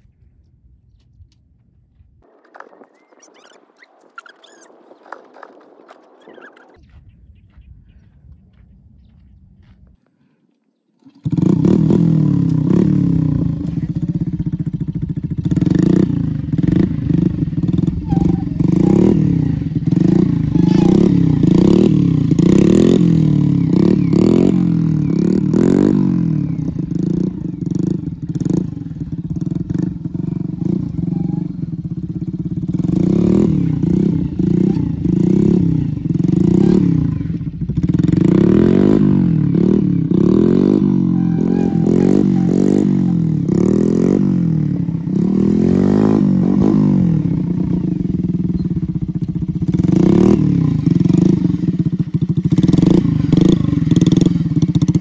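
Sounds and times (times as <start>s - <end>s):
small motorcycle engine revving: 11.0s - 55.0s.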